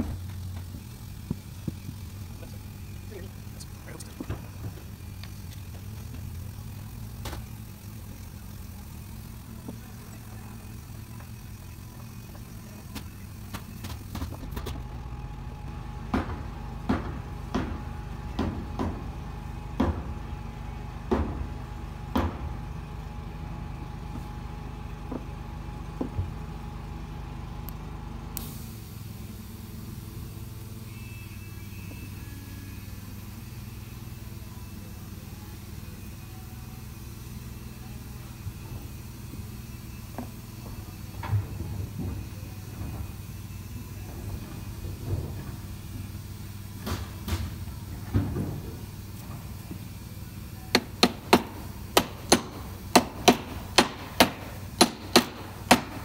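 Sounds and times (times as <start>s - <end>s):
low hum: 0.0s - 33.7s
sharp knocks and clicks of hardware: 50.7s - 56.0s.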